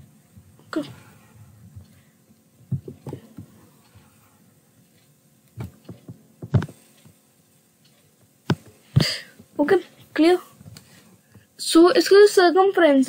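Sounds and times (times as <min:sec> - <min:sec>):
soft taps and knocks: 0:02.7 - 0:03.6.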